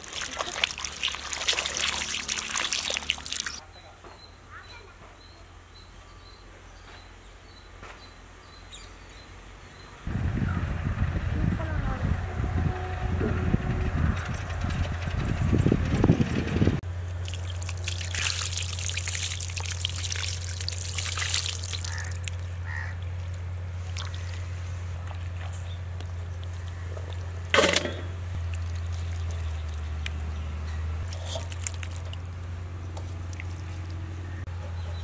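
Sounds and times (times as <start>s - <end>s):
sharp water splash: 0.0s - 3.6s, 17.2s - 22.6s, 31.0s - 32.2s
water pouring and trickling: 0.0s - 3.6s, 17.1s - 30.4s, 31.0s - 34.3s.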